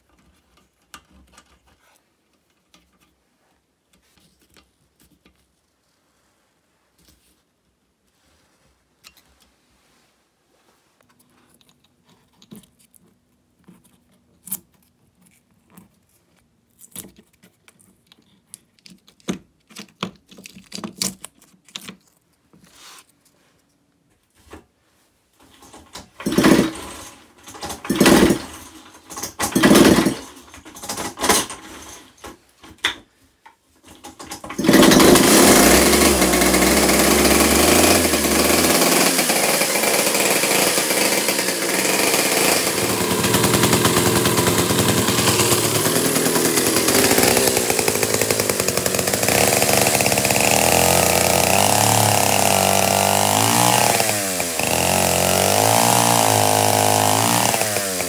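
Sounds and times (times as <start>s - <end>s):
small parts clicking: 11.2s - 22.3s
starter cord pulls: 25.5s - 32.1s, 33.9s - 58.0s
chainsaw engine running: 26.2s - 28.8s, 29.4s - 31.9s, 34.3s - 58.0s.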